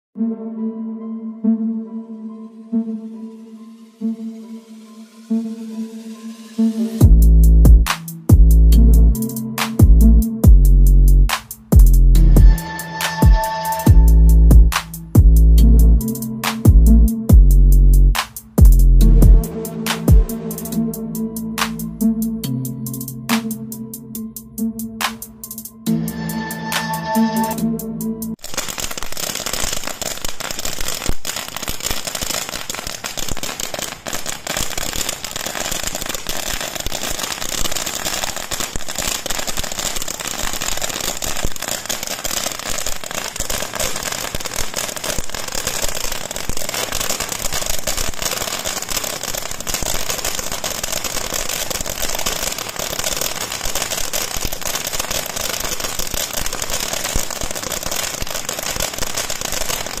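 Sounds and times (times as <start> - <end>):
fireworks crackling hiss: 11.3 - 15.1, 18.1 - 18.6, 25.0 - 27.6, 28.3 - 60.0.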